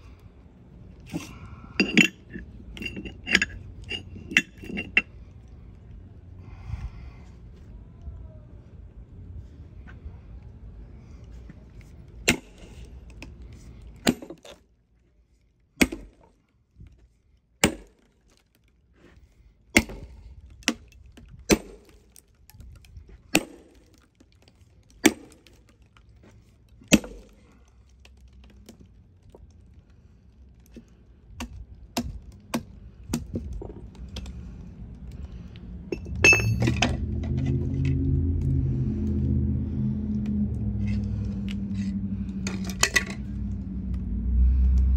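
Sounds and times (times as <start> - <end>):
low rumble of handling: 0.0 - 14.1, 24.0 - 44.9
log splitting with sharp cracks: 17.6 - 35.4.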